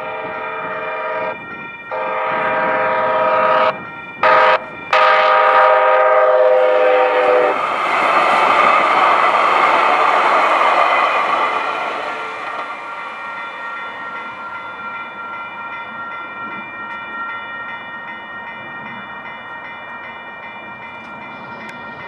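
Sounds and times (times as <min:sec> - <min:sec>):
train horn blasts: 0:00.0 - 0:07.6, 0:11.2 - 0:12.7
train wheels rolling on rails: 0:00.0 - 0:22.0.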